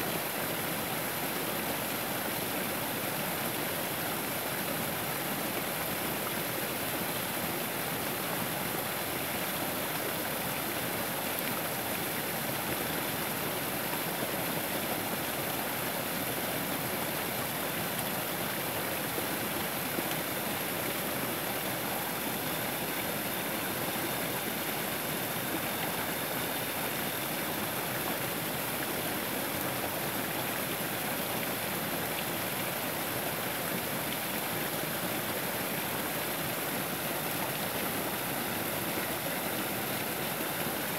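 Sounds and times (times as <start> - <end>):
small waterfall splashing into pool: 0.0 - 40.9.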